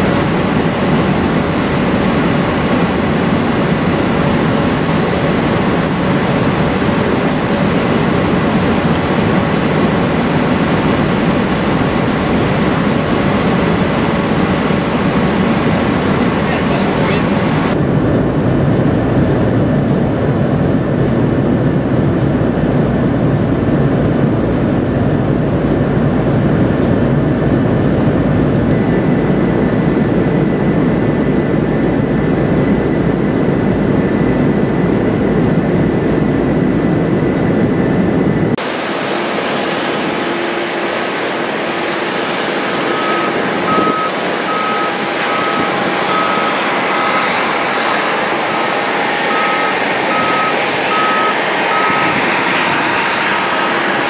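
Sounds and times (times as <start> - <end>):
hissy jet engine: 0.0 - 17.8, 38.5 - 54.0
deep jet cabin roar: 0.0 - 54.0
high repeating beep: 42.9 - 47.3, 49.3 - 52.2.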